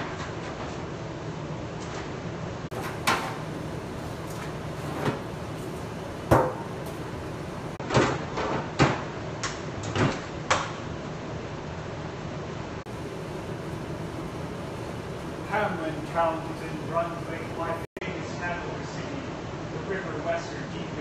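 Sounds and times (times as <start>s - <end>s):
knocks and clunks: 2.7s - 7.8s
steady background hiss: 2.7s - 7.8s, 12.8s - 21.0s.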